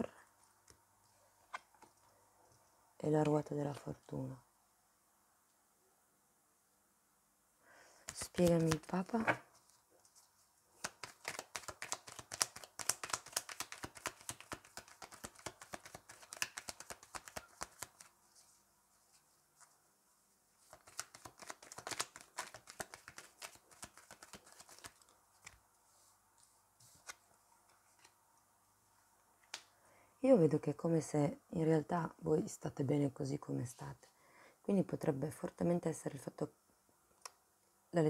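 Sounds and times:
cards riffling: 10.8s - 18.1s, 20.7s - 25.6s.

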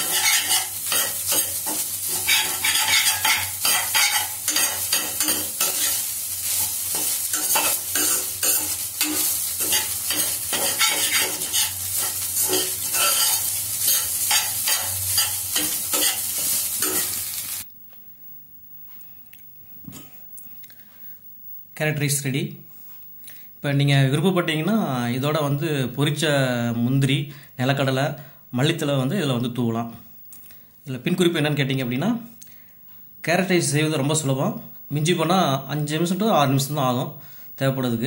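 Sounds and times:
spatula scraping a pan: 0.0s - 17.5s
rice sizzling in a pan: 0.0s - 17.7s.

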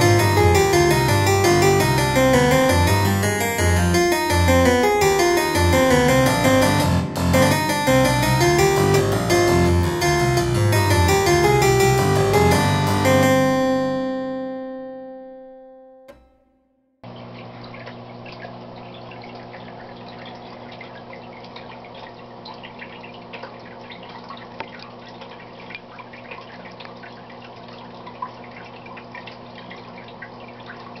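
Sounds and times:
keyboard chord: 0.0s - 16.4s
filter water trickling and dripping: 17.1s - 31.0s.

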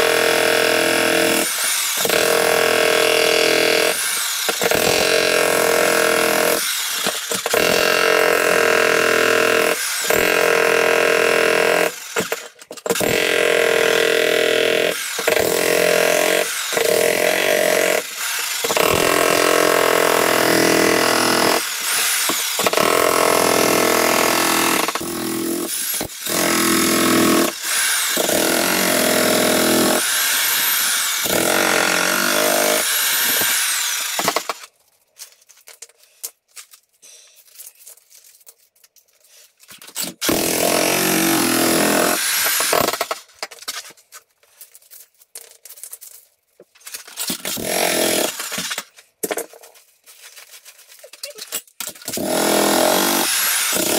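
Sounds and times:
jackhammer breaking concrete: 0.0s - 34.7s, 40.0s - 43.8s, 47.0s - 49.4s, 51.8s - 53.9s.

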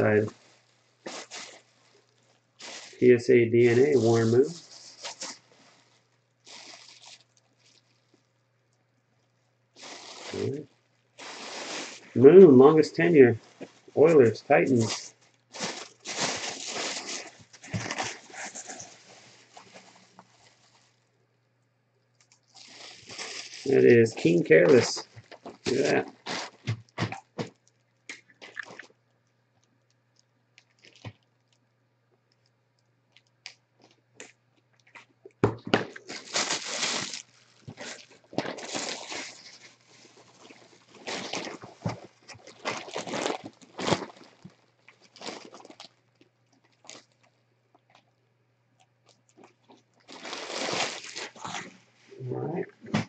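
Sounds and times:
plastic bag crinkling: 0.0s - 8.3s, 9.8s - 21.1s, 22.1s - 28.9s, 35.6s - 46.0s, 46.6s - 47.3s, 49.0s - 51.8s.

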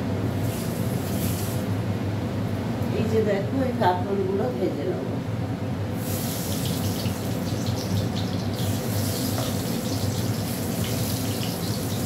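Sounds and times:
gourd slices sizzling in hot oil: 6.0s - 12.0s.

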